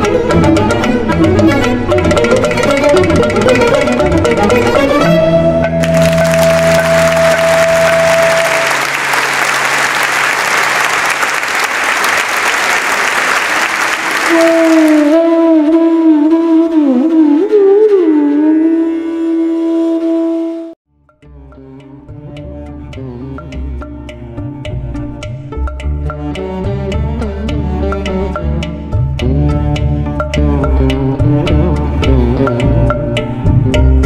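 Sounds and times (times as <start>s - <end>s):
melody over a drone: 1.1s - 8.8s
applause: 5.8s - 15.2s.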